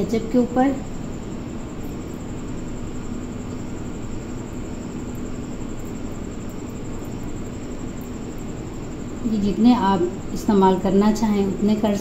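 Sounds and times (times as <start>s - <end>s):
background hum and hiss: 0.0s - 12.0s.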